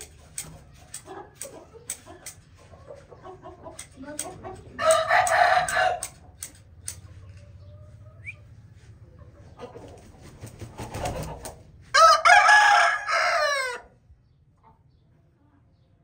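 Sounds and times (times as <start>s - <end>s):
low clucking: 0.0s - 11.6s
rooster crowing: 4.8s - 6.1s, 11.9s - 14.0s.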